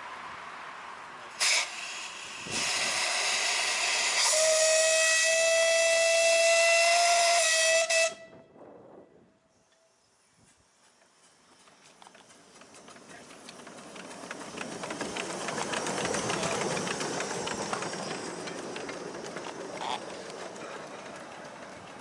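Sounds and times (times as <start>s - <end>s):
rush of steam: 1.2s - 8.1s, 10.2s - 19.7s
steam locomotive whistle: 1.4s - 8.5s.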